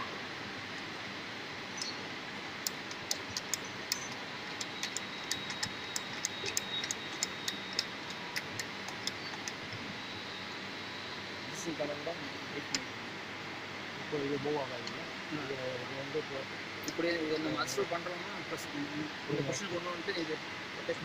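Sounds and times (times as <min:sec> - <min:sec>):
steady hiss: 0:00.0 - 0:21.0
small metal parts clicking: 0:02.6 - 0:09.7.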